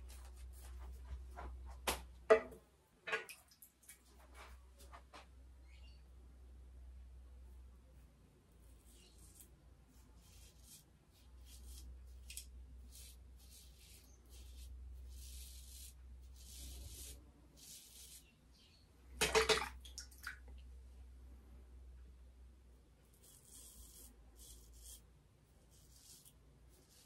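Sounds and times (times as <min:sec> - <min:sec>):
razor scraping beard stubble: 0:08.8 - 0:18.3, 0:23.1 - 0:27.0.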